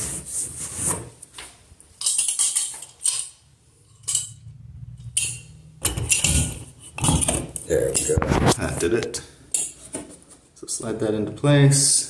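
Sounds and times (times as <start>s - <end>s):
rubbing and scraping on pipe: 6.0s - 8.9s.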